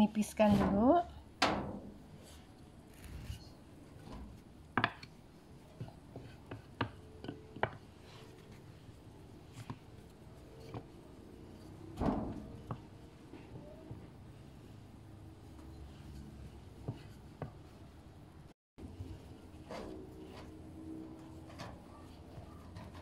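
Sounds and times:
rolling pin rolling dough: 4.4s - 18.1s.

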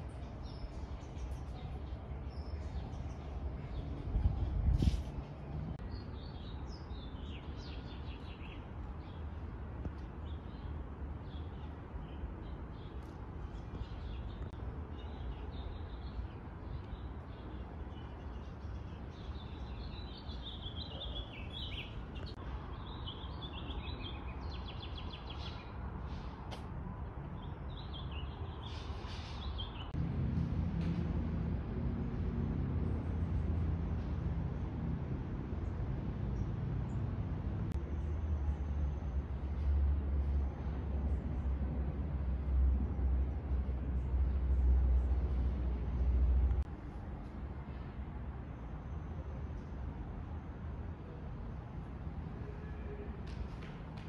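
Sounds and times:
small birds chirping: 5.8s - 26.4s.

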